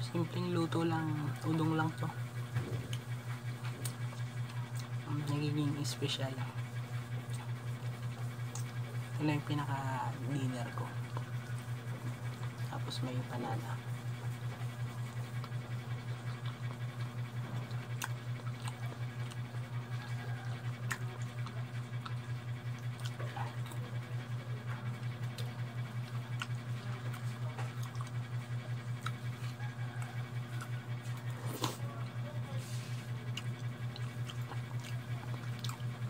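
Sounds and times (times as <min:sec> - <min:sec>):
pulsing low hum: 0:00.0 - 0:36.0
slurping noodles: 0:30.6 - 0:31.9.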